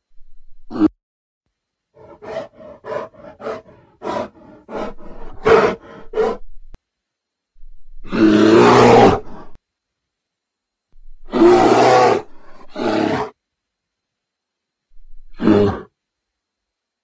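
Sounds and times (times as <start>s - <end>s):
bear roaring: 2.0s - 6.4s, 8.0s - 9.6s, 11.2s - 13.4s, 15.3s - 15.9s.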